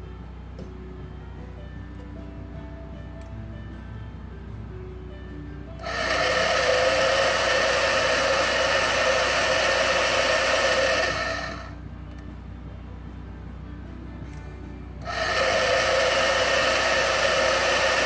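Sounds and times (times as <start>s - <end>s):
band saw running: 5.8s - 11.8s, 15.0s - 18.0s.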